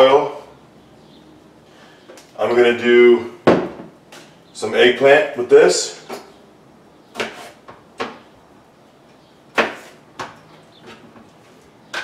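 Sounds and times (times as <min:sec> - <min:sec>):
kitchen knocks and bumps: 0:03.4 - 0:03.9.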